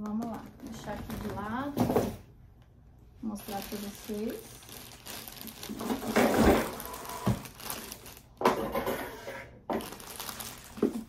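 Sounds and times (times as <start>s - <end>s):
plastic bag crinkling: 3.2s - 8.5s, 9.7s - 11.0s.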